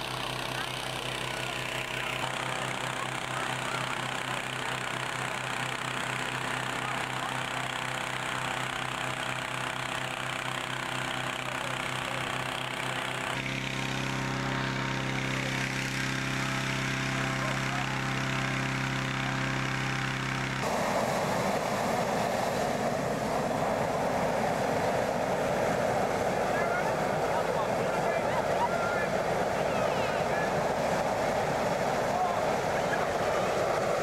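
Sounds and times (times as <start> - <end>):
inflator fan engine running: 0.0 - 34.0
propane burner blast: 0.0 - 34.0.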